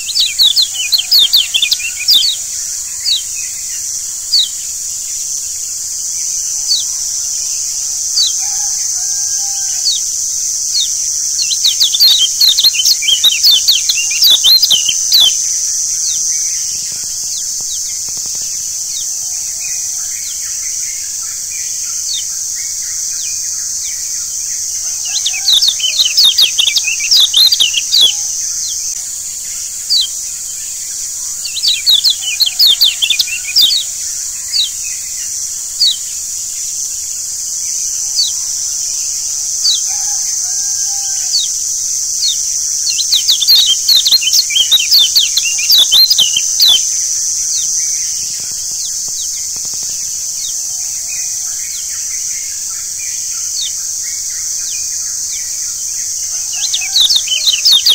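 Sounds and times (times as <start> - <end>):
high bird chirps: 0.0 - 3.7, 9.6 - 16.6, 24.0 - 29.0, 31.4 - 34.8, 41.2 - 47.0, 56.4 - 57.9
faint lower bird calls: 0.0 - 57.9
steady high hiss: 0.0 - 57.9.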